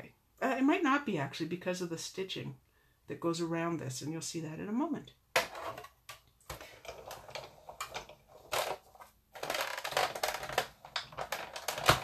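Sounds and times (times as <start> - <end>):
hand-cranked machine clicks and knocks: 9.4 - 12.0.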